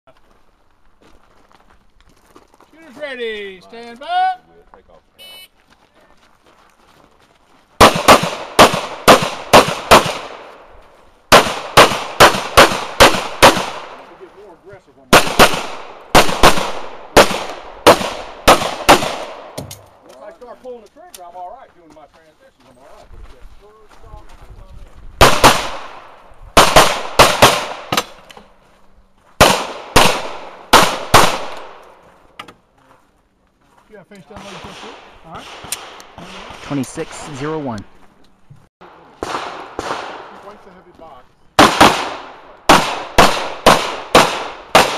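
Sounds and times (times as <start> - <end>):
pistol shots: 7.8 - 10.6, 11.3 - 14.1, 15.1 - 19.8, 25.2 - 28.2, 29.4 - 31.9, 34.4 - 36.8, 39.2 - 40.4, 41.6 - 44.9.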